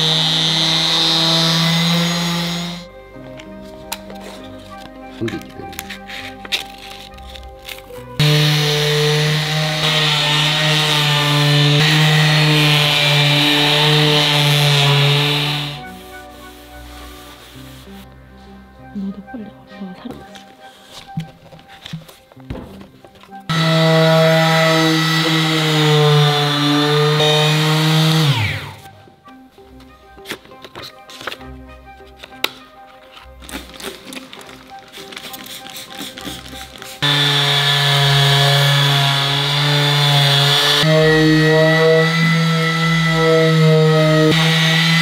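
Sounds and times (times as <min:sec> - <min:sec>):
power tool grinding wood: 0:00.0 - 0:02.9, 0:08.2 - 0:17.9, 0:23.5 - 0:28.9, 0:34.3 - 0:45.0.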